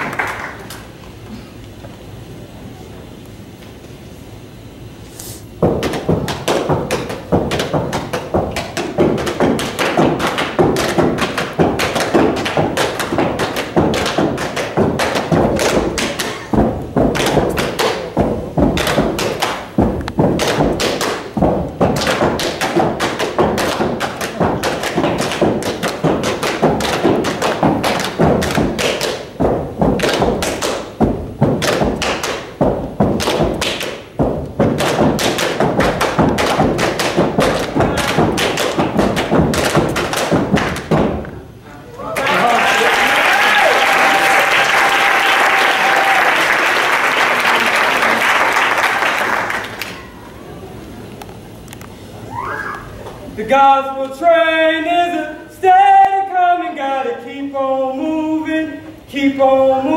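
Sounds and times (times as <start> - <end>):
rapid thumps and taps: 5.6 - 41.4.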